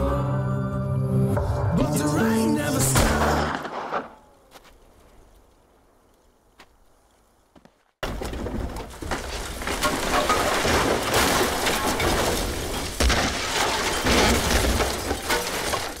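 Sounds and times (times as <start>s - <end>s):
debris crashing down: 8.0s - 16.0s
timber cracking and splintering: 8.0s - 16.0s.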